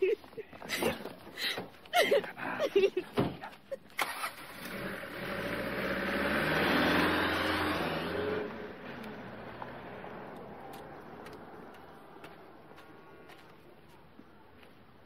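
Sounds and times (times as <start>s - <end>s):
pickup truck engine pulling away: 4.0s - 11.7s.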